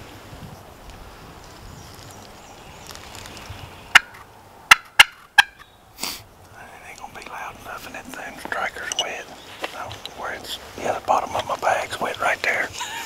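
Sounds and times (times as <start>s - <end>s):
turkey call notes: 3.9s - 6.2s.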